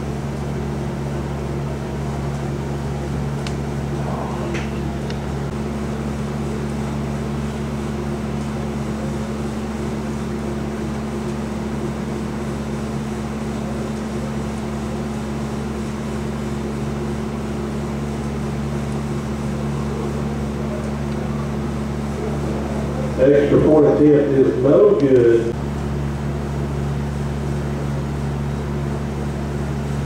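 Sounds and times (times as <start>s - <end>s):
low hum: 3.0s - 6.2s.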